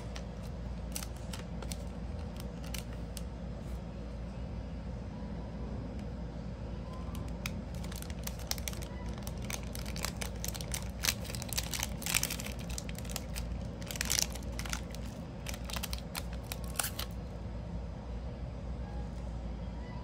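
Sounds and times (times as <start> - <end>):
plastic bag crinkling: 0.0 - 3.3, 7.0 - 17.2.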